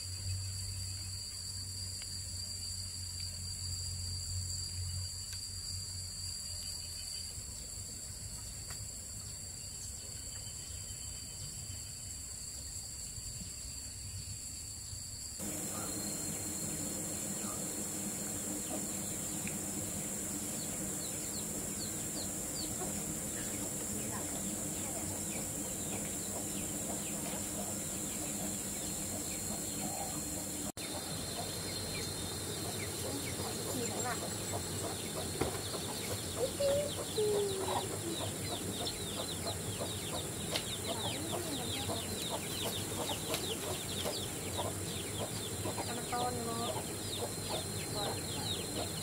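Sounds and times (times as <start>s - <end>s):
short insect chirps: 0.0s - 37.4s
insects droning: 0.0s - 49.0s.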